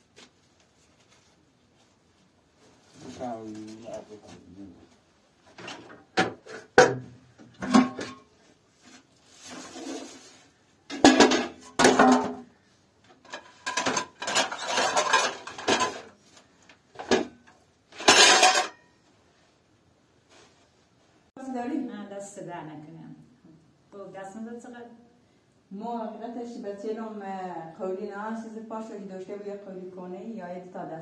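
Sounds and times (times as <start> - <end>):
dishes and utensils clattering: 7.6 - 8.3, 10.9 - 12.5, 13.2 - 16.1, 17.0 - 18.9.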